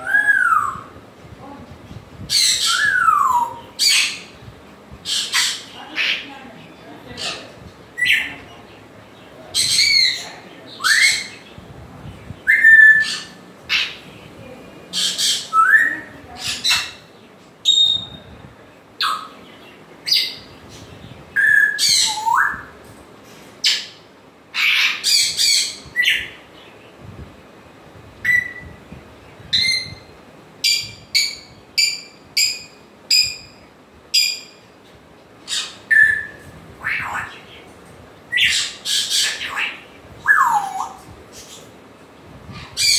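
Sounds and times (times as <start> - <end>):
parrot squawking: 24.5 - 26.3, 35.5 - 37.4.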